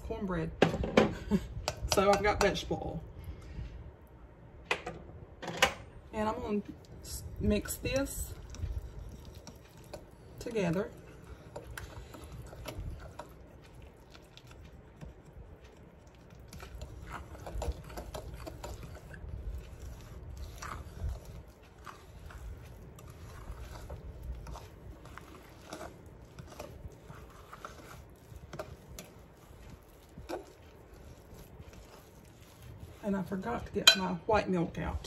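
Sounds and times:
fork stirring thick batter: 1.6 - 2.7, 6.2 - 35.0
fork scraping glass bowl: 7.1 - 34.1.

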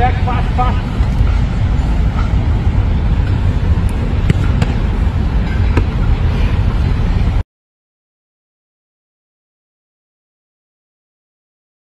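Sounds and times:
low outdoor rumble: 0.0 - 7.4
football being kicked: 4.2 - 4.8, 5.8 - 6.0.

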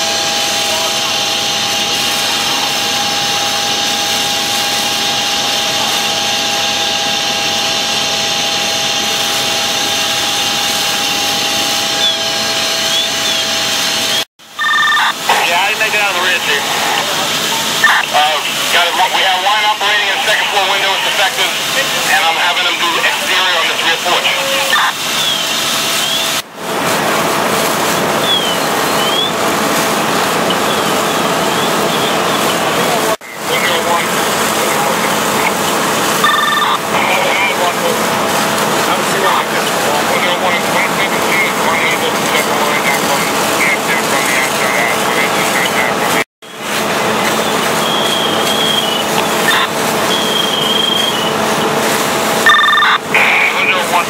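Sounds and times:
fire engine pumps droning: 0.0 - 54.0.

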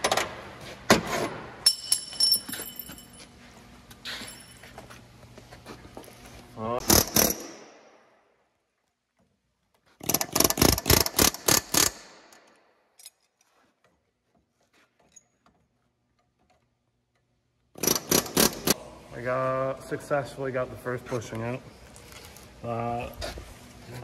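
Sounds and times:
air hammer bursts: 17.8 - 18.8.

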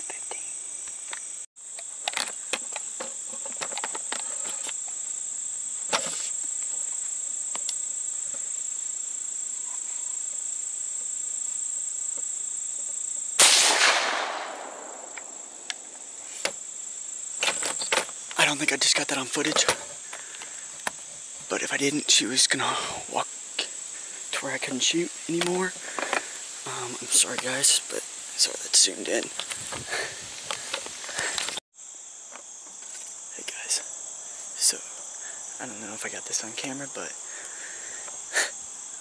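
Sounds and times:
insects buzzing: 0.0 - 39.0
echoing gunshot: 13.4 - 15.6.

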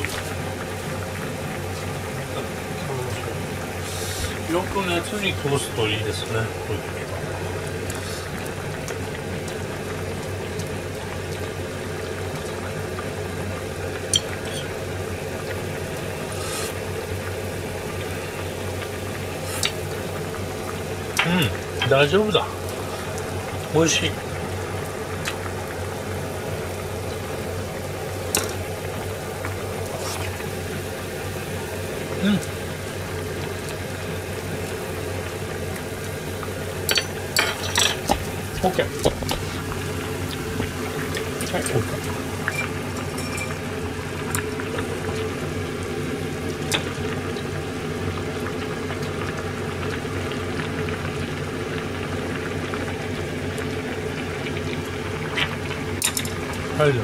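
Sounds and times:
soup simmering in saucepan: 0.0 - 57.0
spoon clinking against pan: 42.5 - 43.6.

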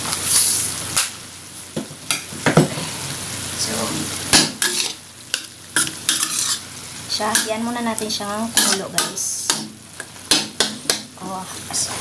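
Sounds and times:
meat sizzling in a wok: 0.0 - 12.0
spatula scraping a pan: 4.5 - 6.7, 8.6 - 9.6.

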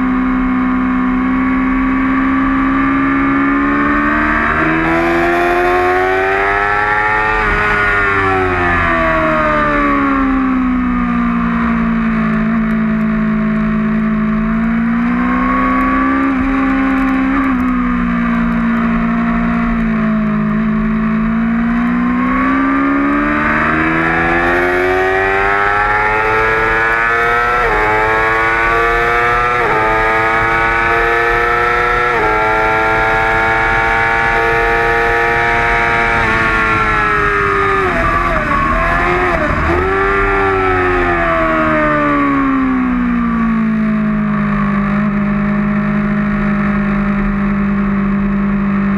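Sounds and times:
motorcycle engine revving: 0.0 - 48.9
wind rush: 35.6 - 42.4.

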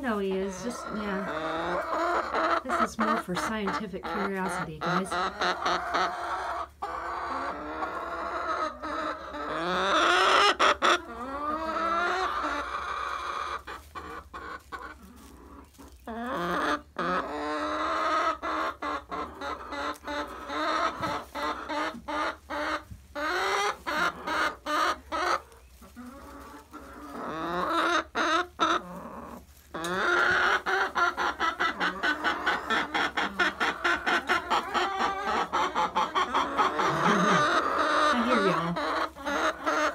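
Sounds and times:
chickens clucking: 0.0 - 39.9.

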